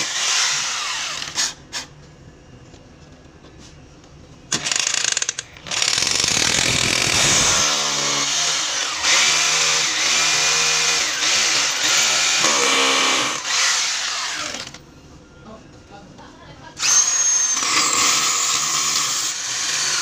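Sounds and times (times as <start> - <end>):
electric drill boring into tile: 0.0 - 1.6, 4.6 - 14.8, 16.8 - 20.0.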